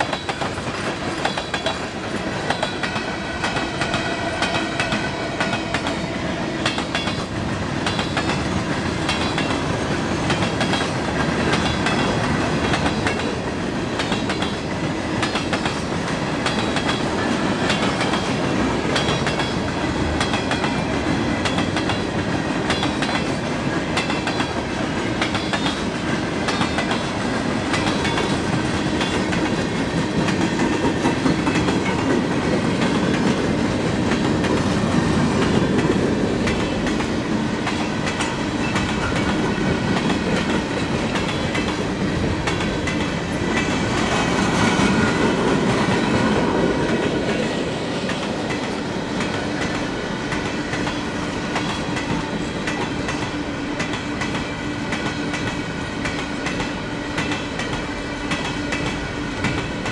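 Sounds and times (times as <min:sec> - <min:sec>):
rumble of train cars: 0:00.0 - 0:59.9
train wheels clickety-clack: 0:00.0 - 0:59.9.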